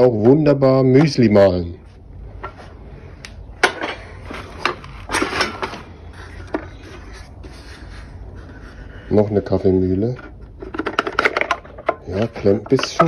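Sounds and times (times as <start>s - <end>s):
wooden grinders knocking: 10.6s - 13.0s.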